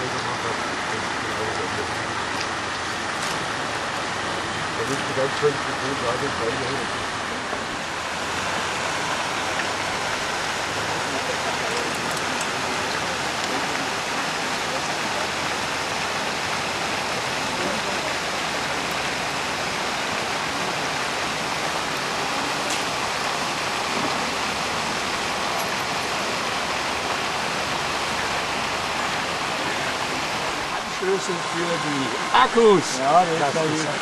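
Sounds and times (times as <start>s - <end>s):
fountain water splashing: 0.0s - 34.0s.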